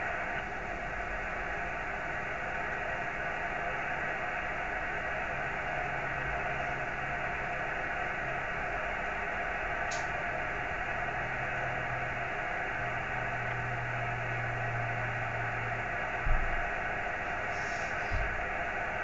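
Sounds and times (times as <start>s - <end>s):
radio static hiss: 15.2s - 19.0s.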